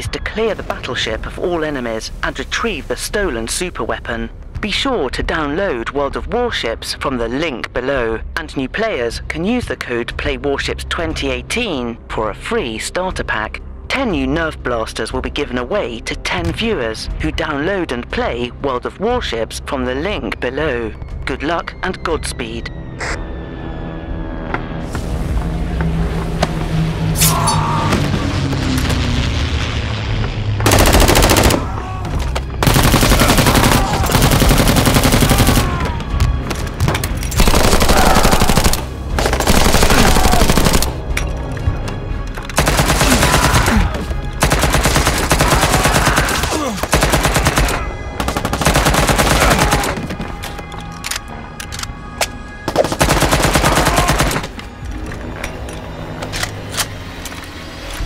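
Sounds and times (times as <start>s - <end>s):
background music: 0.0s - 28.8s, 29.9s - 58.0s
rapid blaster fire: 30.7s - 31.6s, 32.6s - 35.7s, 37.4s - 41.0s, 42.6s - 50.0s, 52.7s - 54.6s.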